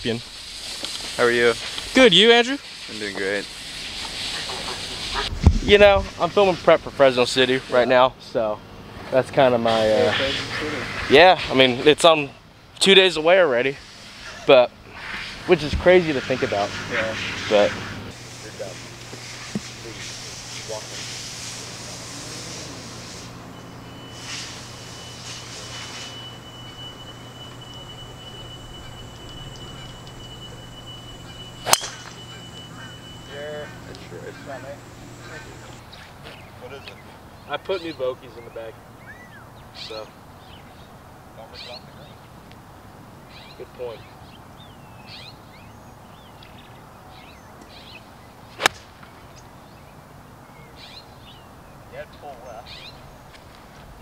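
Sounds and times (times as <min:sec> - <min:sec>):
birds chirping: 0:00.9 - 0:54.0
low hum: 0:17.9 - 0:35.8
steady high-pitched tone: 0:21.9 - 0:35.8
club striking ball crack: 0:31.6 - 0:32.4, 0:48.6 - 0:49.1
golf club swish: 0:48.6 - 0:49.0.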